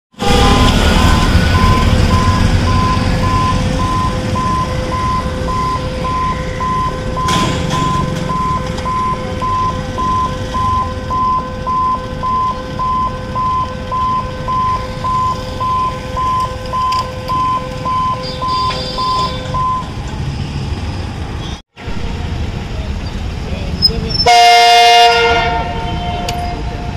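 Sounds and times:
level crossing electronic beeps: 0.2s - 20.0s.

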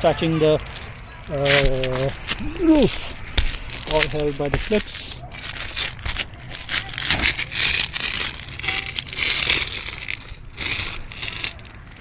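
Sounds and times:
footsteps crunching on shingle roof: 0.6s - 12.0s.

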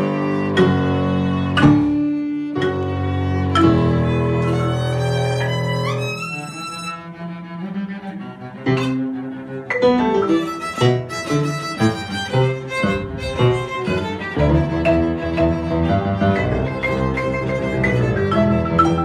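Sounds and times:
violin: 0.0s - 19.0s
marimba: 18.2s - 19.0s.

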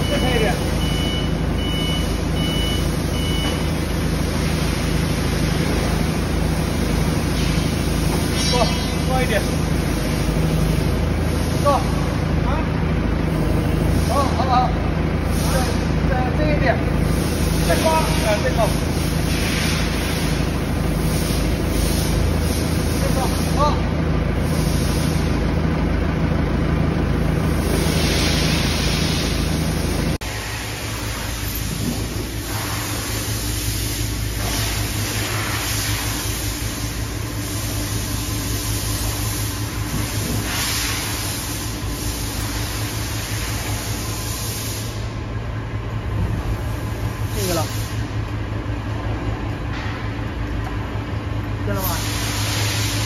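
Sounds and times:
high electronic beep: 0.0s - 3.7s
machinery humming: 0.0s - 53.0s.

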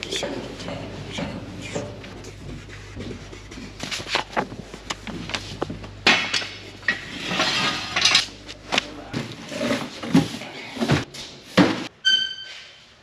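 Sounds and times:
cardboard and paper rustling: 2.3s - 6.0s
clinks and knocks of parts: 6.0s - 8.9s.

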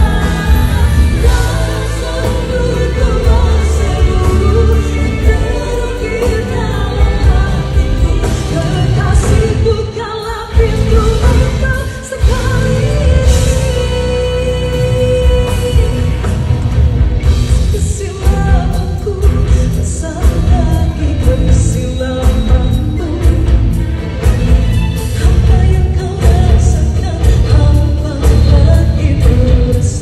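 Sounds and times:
woman singing into a microphone: 0.0s - 16.5s, 17.6s - 23.8s, 25.2s - 30.0s
band playing with strong bass: 0.0s - 30.0s.

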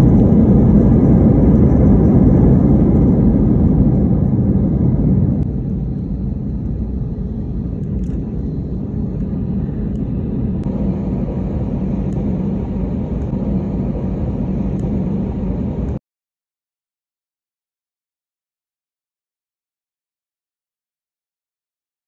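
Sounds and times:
constant low hum: 0.0s - 16.0s
jet engines and wheels rumbling: 0.0s - 16.0s.

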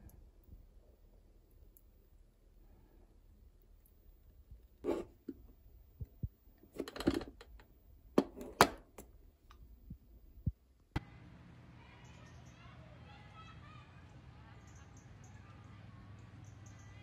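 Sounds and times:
plastic containers and lids handled: 4.8s - 5.6s, 6.6s - 9.2s.

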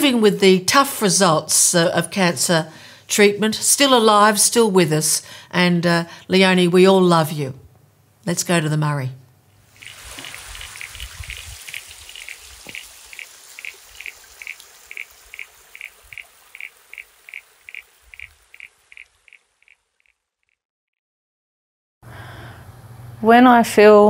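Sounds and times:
trickling water: 9.7s - 20.5s.

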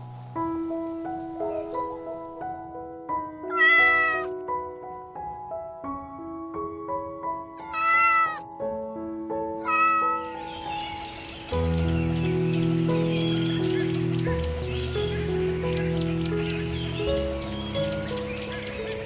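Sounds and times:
background music: 0.0s - 19.0s
cat meowing: 3.5s - 4.3s, 7.6s - 8.5s, 9.6s - 10.4s.

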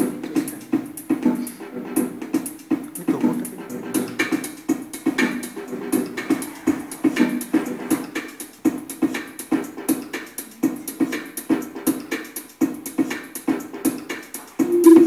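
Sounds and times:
electronic music over loudspeakers: 14.6s - 15.0s.

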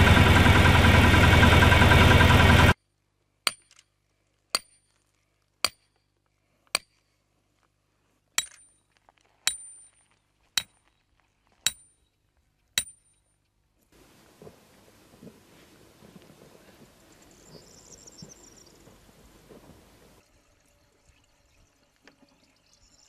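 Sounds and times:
hammer striking metal stake: 3.5s - 3.9s, 4.5s - 4.9s, 5.6s - 6.0s, 6.7s - 7.0s, 8.4s - 8.8s, 9.4s - 10.0s, 10.6s - 10.8s, 11.6s - 12.0s, 12.8s - 13.2s.

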